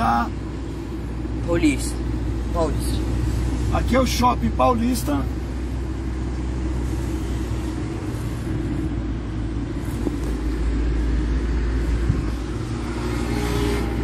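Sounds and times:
car engine and road noise: 0:00.0 - 0:14.0.

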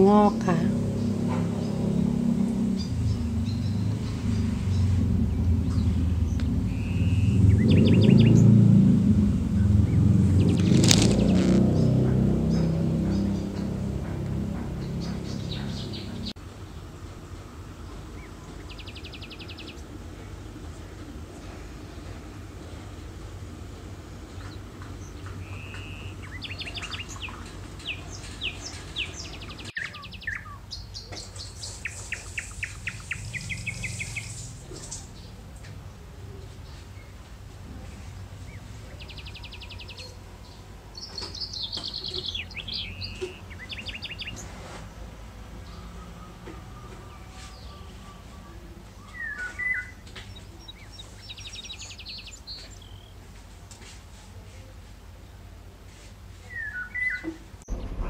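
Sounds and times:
steady low hum: 0:00.0 - 0:19.0, 0:57.6 - 0:58.0
songbirds chirping and trilling: 0:00.0 - 0:58.0
bird whistled chirp: 0:06.7 - 0:08.4.

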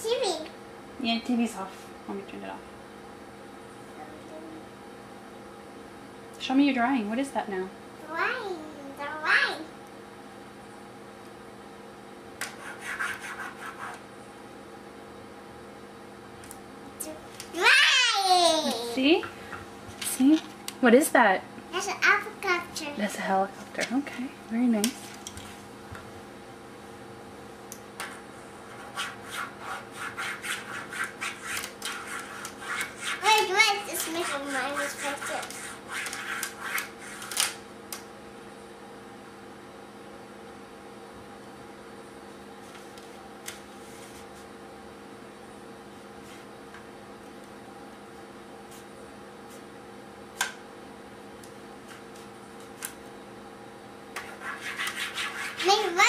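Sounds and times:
steady low hum: 0:00.0 - 0:56.0
scribbling on paper: 0:12.5 - 0:14.0, 0:28.7 - 0:33.4, 0:34.0 - 0:37.3, 0:54.2 - 0:55.9.

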